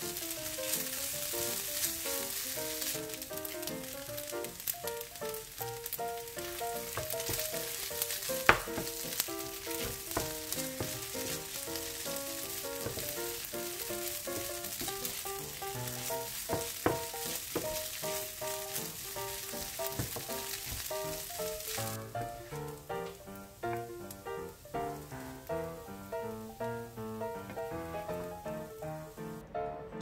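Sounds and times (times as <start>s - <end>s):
spatula stirring and scraping: 0.0s - 22.8s
rice sizzling in frying pan: 0.0s - 29.4s
spatula knocking on pan: 6.8s - 21.7s.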